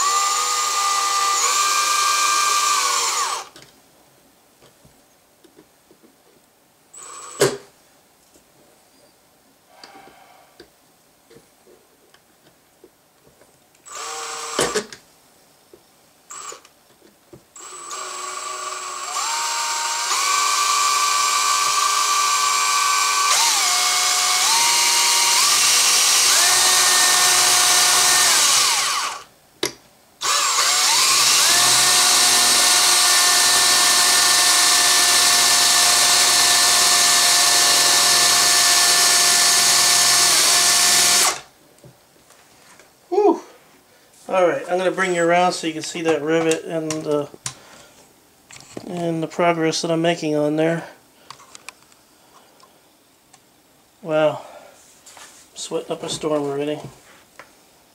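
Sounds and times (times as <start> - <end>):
cordless drill whining: 0.0 - 3.6, 7.0 - 7.6, 13.8 - 14.9, 16.3 - 16.7, 17.6 - 29.3, 30.2 - 41.5.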